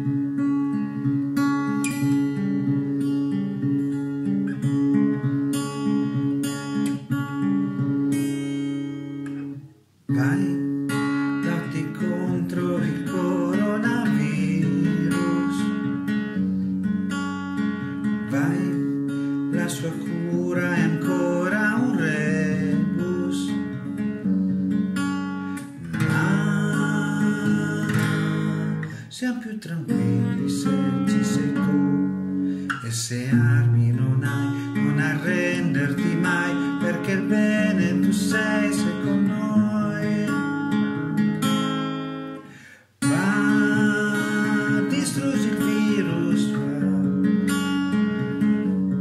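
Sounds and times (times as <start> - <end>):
strummed acoustic guitar: 0.0 - 49.0
person singing: 10.1 - 16.1, 18.2 - 24.0, 25.6 - 41.2, 43.0 - 48.8.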